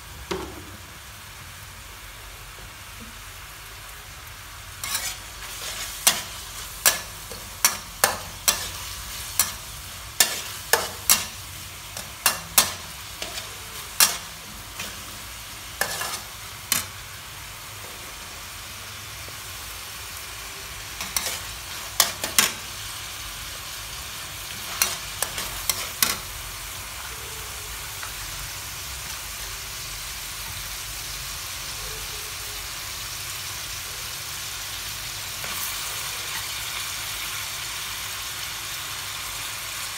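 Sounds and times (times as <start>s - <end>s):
pork sizzling in wok: 0.0s - 39.9s
metal spatula scraping wok: 4.8s - 17.0s, 20.9s - 22.8s, 24.4s - 26.4s.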